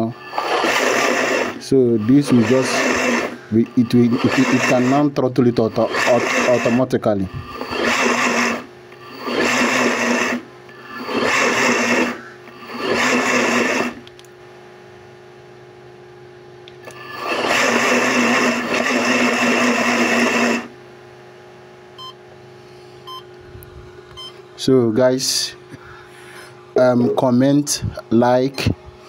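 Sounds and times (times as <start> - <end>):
blender motor running: 0.0 - 14.2, 16.8 - 20.8
faint short beep: 22.0 - 22.2, 23.0 - 23.3.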